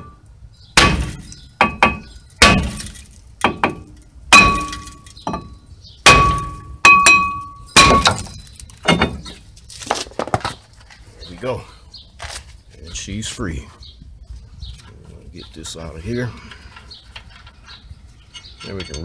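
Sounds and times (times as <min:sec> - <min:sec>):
hammer clanging on brake rotor: 0:00.0 - 0:09.4, 0:16.5 - 0:19.0.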